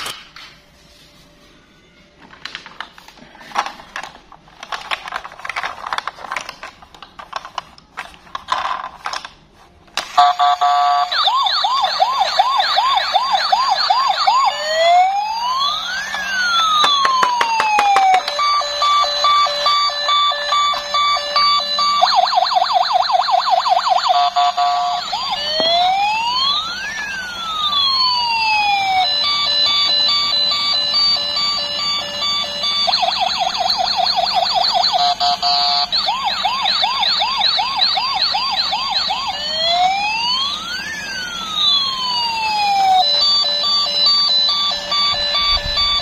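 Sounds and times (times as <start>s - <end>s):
toy siren wailing and yelping: 10.2s - 46.0s.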